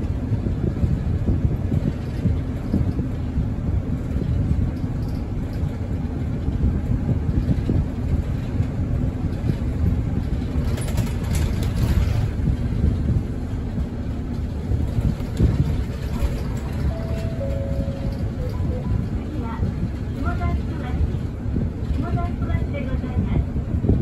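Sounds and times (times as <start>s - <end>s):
bus engine drone: 0.0s - 24.0s
road rumble: 0.0s - 24.0s.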